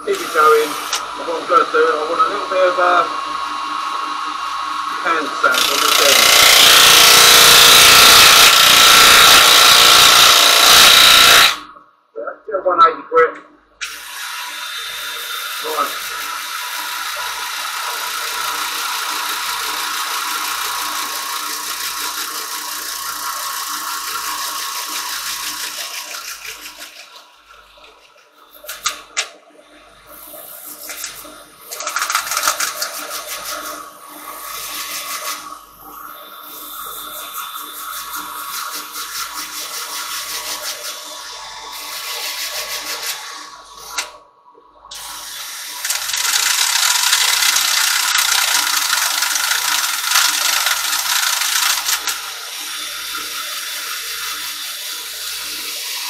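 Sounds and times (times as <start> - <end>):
drill sanding pad on wood: 0.0 - 11.6, 13.8 - 27.1, 31.9 - 35.6, 44.9 - 56.0.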